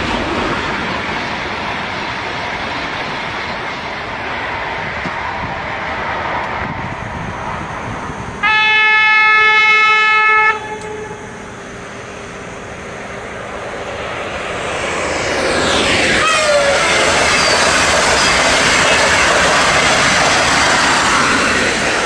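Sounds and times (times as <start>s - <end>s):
electric trains rushing by: 0.0s - 22.0s
train falling whine: 0.0s - 22.0s
train horn: 8.4s - 11.5s, 16.2s - 16.8s.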